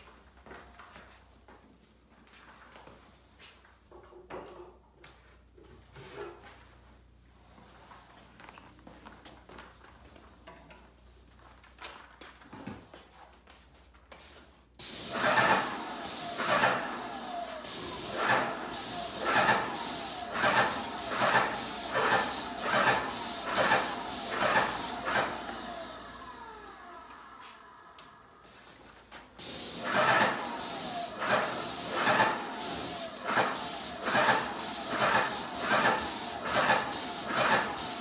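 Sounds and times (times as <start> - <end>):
paint sprayer hissing: 14.8 - 26.0, 29.4 - 38.0.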